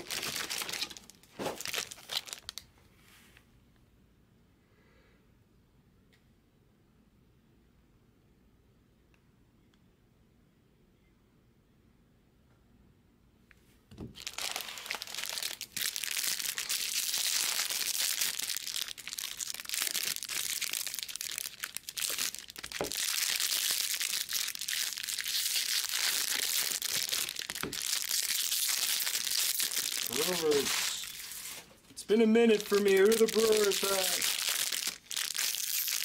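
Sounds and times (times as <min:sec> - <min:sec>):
foil wrappers crinkling and ripping: 0:00.0 - 0:02.6, 0:14.2 - 0:31.8, 0:32.4 - 0:36.0.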